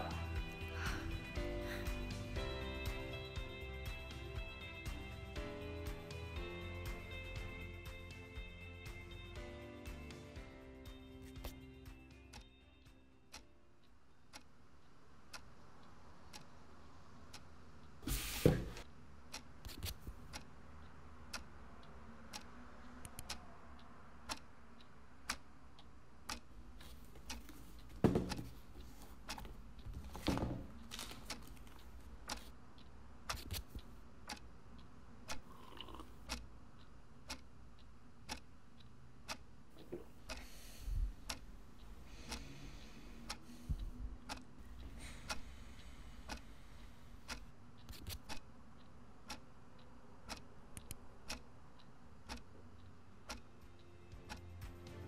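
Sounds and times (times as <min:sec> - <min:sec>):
clock ticking: 0:10.7 - 0:16.6, 0:18.8 - 0:55.0
low background hum: 0:10.9 - 0:55.0.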